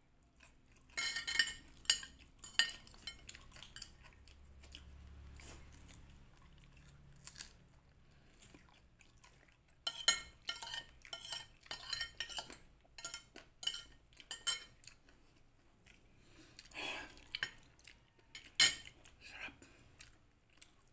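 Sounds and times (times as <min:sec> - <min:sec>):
cutlery clinking on a plate: 0:01.0 - 0:04.0, 0:09.8 - 0:14.8, 0:18.3 - 0:19.0.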